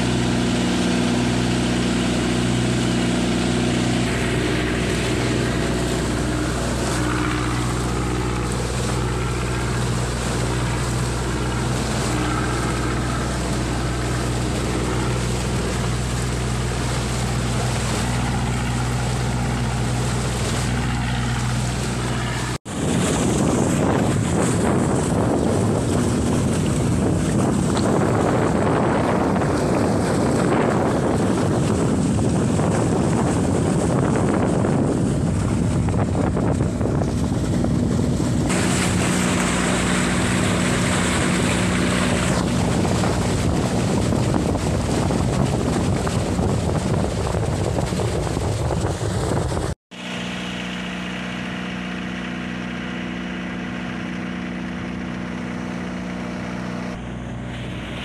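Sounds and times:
wind on microphone: 0:00.0 - 0:49.8
diesel engine droning: 0:00.0 - 0:58.0
water splashing against boat hull: 0:00.0 - 0:58.0.

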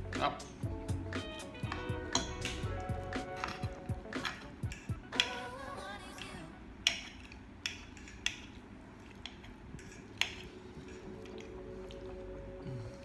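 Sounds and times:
forks scraping against plates: 0:03.3 - 0:05.4, 0:06.8 - 0:11.6.

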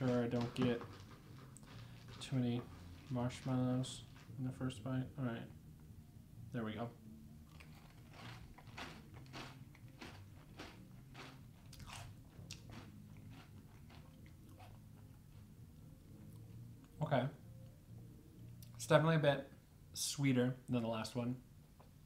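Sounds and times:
chewing crunchy cereal: 0:00.0 - 0:04.4, 0:07.4 - 0:16.6.

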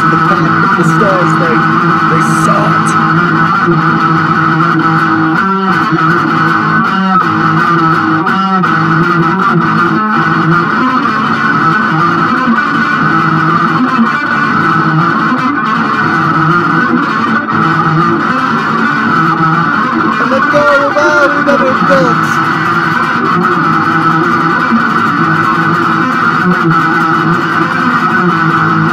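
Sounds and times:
psychedelic rock electric guitar: 0:00.0 - 0:28.9.

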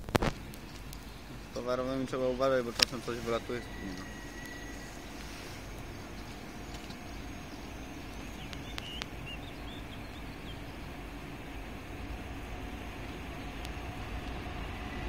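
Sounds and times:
low outdoor rumble: 0:00.0 - 0:15.0
bird chirps: 0:00.6 - 0:11.6
sharp clicks: 0:08.4 - 0:09.2.

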